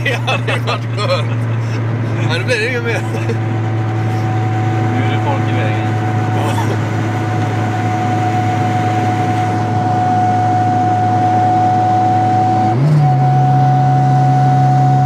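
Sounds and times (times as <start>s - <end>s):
car engine running: 0.0s - 15.0s
thin steady whistle: 8.2s - 15.0s.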